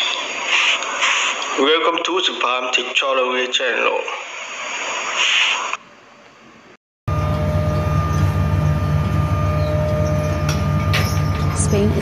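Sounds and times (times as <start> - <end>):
boat engine and deck machinery drone: 7.1 - 12.0.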